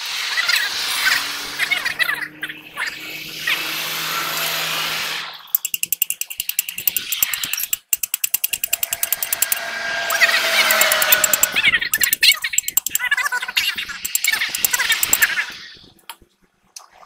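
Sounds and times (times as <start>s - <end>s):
power tool hammering: 2.9s - 13.0s, 13.8s - 15.6s.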